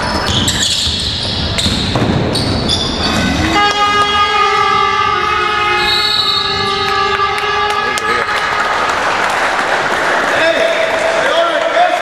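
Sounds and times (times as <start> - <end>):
gym crowd noise: 0.0 - 12.0
game horn long electric blast: 3.4 - 8.5.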